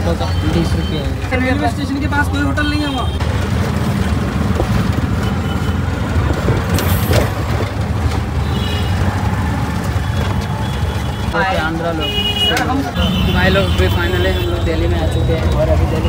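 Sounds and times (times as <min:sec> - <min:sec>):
auto-rickshaw engine rumbling: 0:00.0 - 0:16.0.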